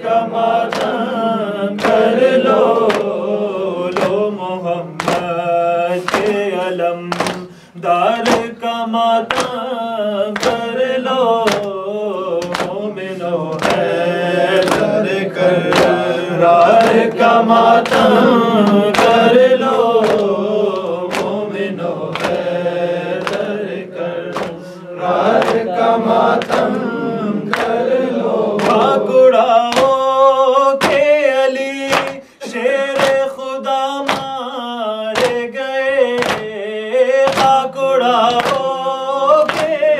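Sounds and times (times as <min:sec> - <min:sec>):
men chanting a lament: 0:00.0 - 0:39.9
chest-beating slaps: 0:00.7 - 0:01.0, 0:01.8 - 0:05.4, 0:06.0 - 0:07.6, 0:08.2 - 0:08.6, 0:09.3 - 0:09.6, 0:10.4 - 0:10.7, 0:11.3 - 0:29.0, 0:29.7 - 0:30.0, 0:30.8 - 0:31.1, 0:31.9 - 0:32.2, 0:33.0 - 0:33.3, 0:34.1 - 0:34.4, 0:35.2 - 0:35.5, 0:36.2 - 0:36.6, 0:37.2 - 0:37.6, 0:38.3 - 0:38.8, 0:39.4 - 0:39.9.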